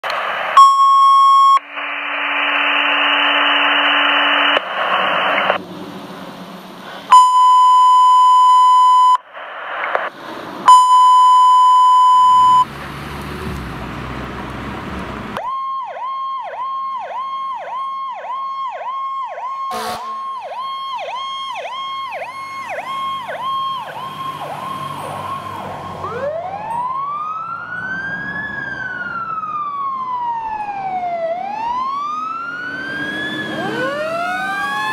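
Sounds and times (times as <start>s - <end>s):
fire engine electronic siren: 0.0s - 5.6s, 6.9s - 9.3s, 9.9s - 12.7s, 15.4s - 34.9s
radio alert tones: 0.0s - 5.6s, 7.0s - 10.1s, 10.7s - 12.7s, 19.6s - 26.8s, 33.5s - 34.9s
radio static bursts: 0.0s - 5.6s, 8.3s - 10.2s.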